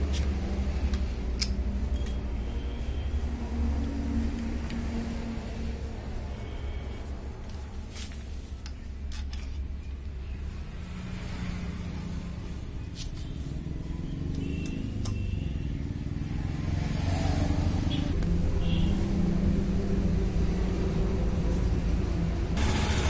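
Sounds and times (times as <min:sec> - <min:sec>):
steady rushing noise: 0:00.0 - 0:08.6
wrench clicking on metal: 0:00.9 - 0:02.3.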